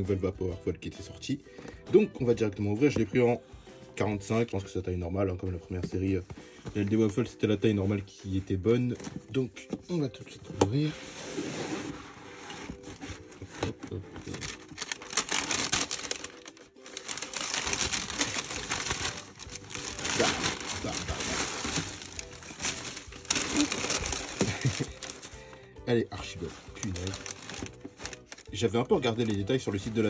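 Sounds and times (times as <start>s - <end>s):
tissue paper rustling: 10.8s - 30.0s.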